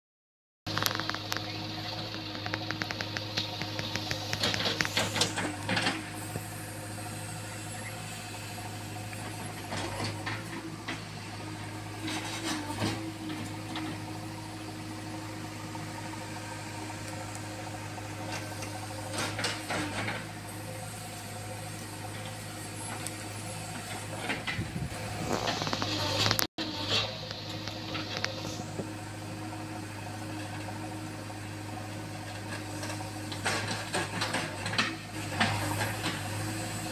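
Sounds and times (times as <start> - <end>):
diesel engine running: 0.7 - 36.9.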